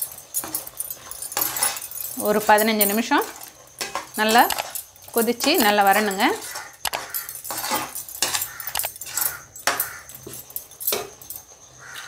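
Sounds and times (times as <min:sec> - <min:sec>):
metal spatula scraping a pan: 0:03.2 - 0:10.0.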